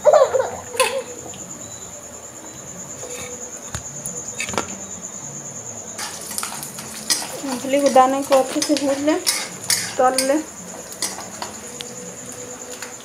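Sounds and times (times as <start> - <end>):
high-pitched insect trill: 0.0 - 13.0
peanuts sizzling in oil: 6.0 - 13.0.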